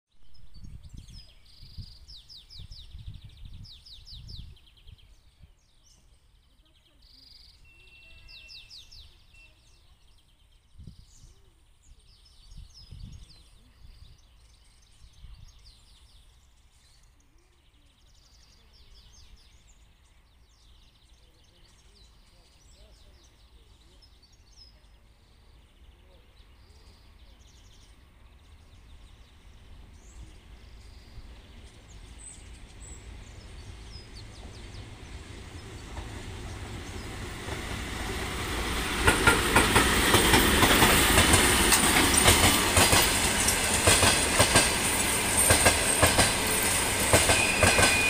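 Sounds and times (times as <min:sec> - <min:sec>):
wind buffeting microphone: 0:00.2 - 0:05.5, 0:10.7 - 0:11.4, 0:12.3 - 0:15.9
small birds trilling: 0:00.6 - 0:48.0.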